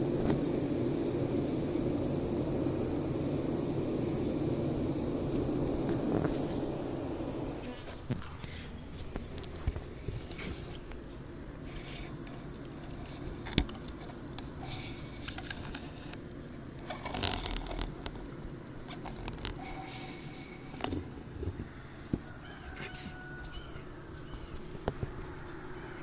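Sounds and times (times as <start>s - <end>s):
bees humming in hive: 0.0s - 26.0s
small clicks and scrapes: 7.6s - 23.6s.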